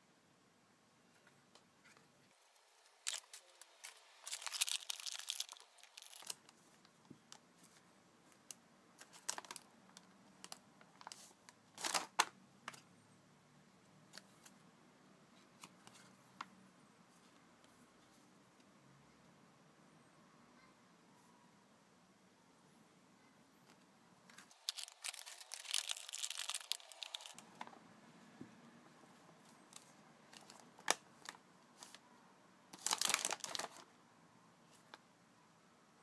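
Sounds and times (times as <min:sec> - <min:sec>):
plastic bag crinkling and tearing: 0:02.8 - 0:06.6, 0:09.0 - 0:09.7, 0:11.8 - 0:12.3, 0:24.3 - 0:27.6, 0:29.7 - 0:32.0, 0:32.7 - 0:33.9.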